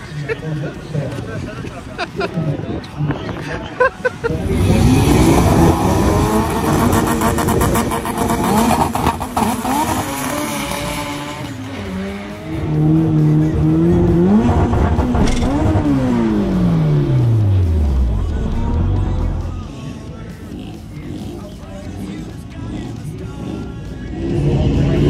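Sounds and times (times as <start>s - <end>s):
car engine accelerating hard: 4.3s - 19.8s, 24.2s - 25.0s.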